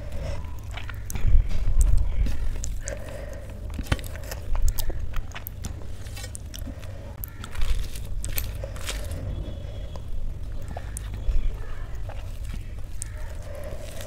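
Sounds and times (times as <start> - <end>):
chewing food: 0.0 - 14.0
food crunches: 0.4 - 9.3, 10.0 - 14.0
wet mouth clicks: 0.5 - 6.7.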